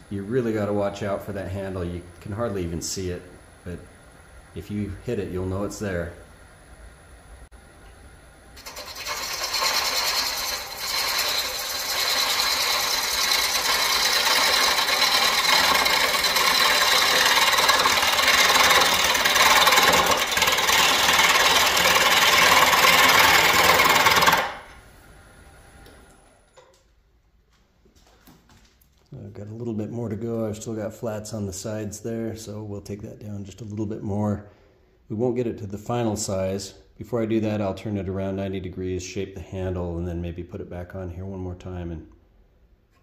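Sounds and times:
wood lathe gouge cutting hiss: 8.6s - 24.8s.

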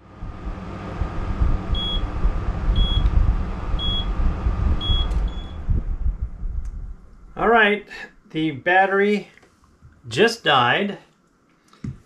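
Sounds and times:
air conditioner humming: 0.0s - 12.0s
electronic alarm beeps: 1.8s - 2.0s, 2.8s - 3.1s, 3.8s - 4.1s, 4.8s - 5.6s.

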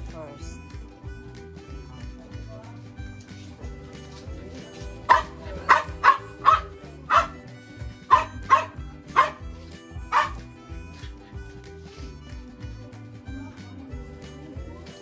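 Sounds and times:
background music: 0.0s - 15.0s
dog barking: 5.0s - 7.4s, 8.1s - 10.4s.

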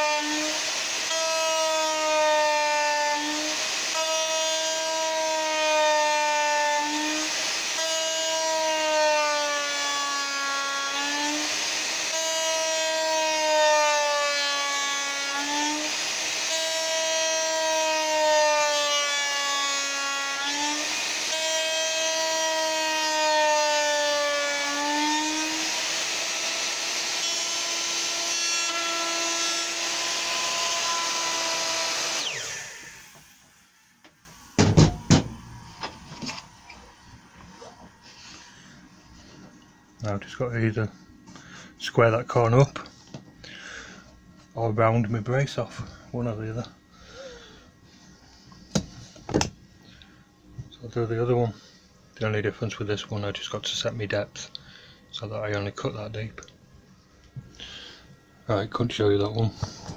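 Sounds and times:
electric router whining: 0.0s - 41.4s.

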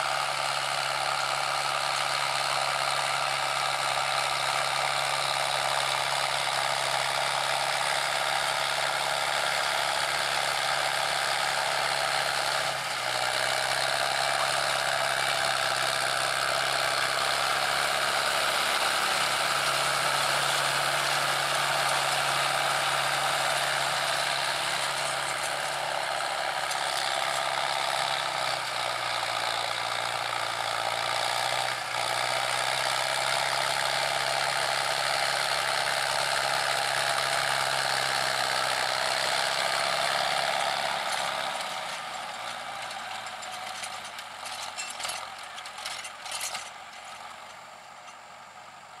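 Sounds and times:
tractor diesel engine hum: 0.0s - 49.0s
rotary tiller churning: 14.0s - 29.3s.

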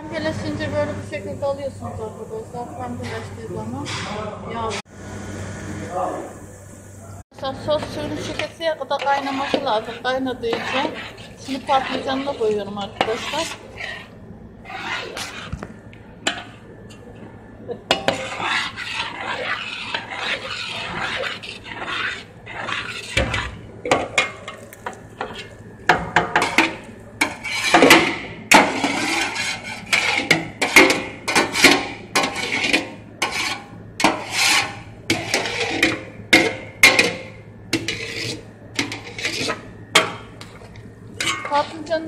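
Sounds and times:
metal colander scraping and clinking: 26.4s - 40.1s, 41.2s - 41.9s.

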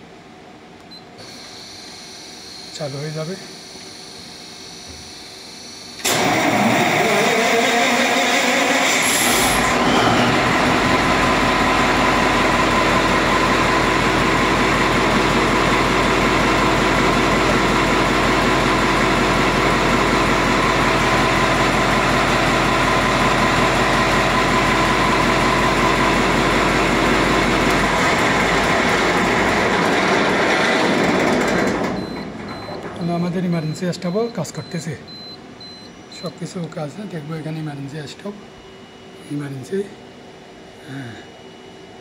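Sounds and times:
diesel engine running: 6.0s - 32.7s.

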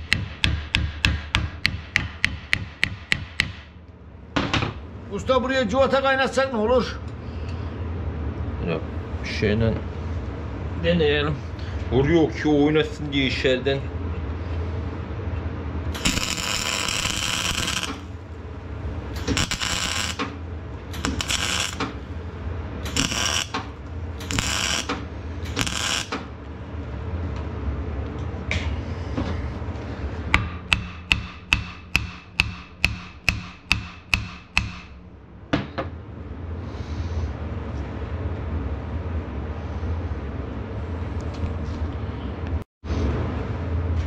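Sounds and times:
welder arcing: 15.9s - 18.3s, 19.0s - 22.2s, 22.8s - 26.4s.

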